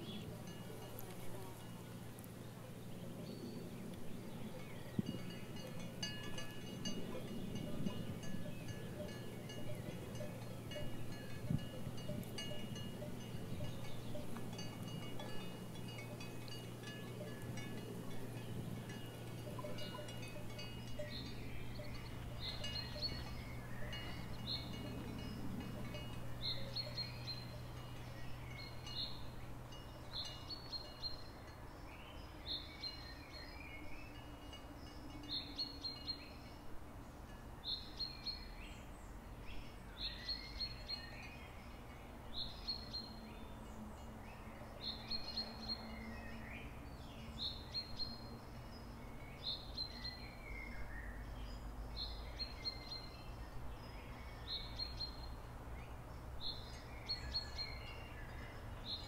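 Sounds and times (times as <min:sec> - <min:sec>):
birds chirping: 0:02.4 - 0:36.6.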